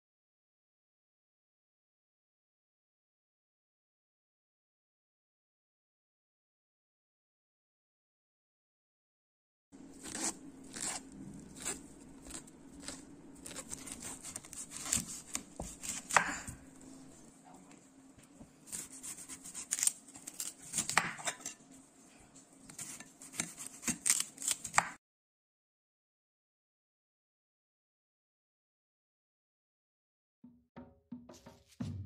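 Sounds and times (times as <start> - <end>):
knife crunching through corn cob: 9.8 - 16.7, 18.7 - 21.4, 22.7 - 25.0.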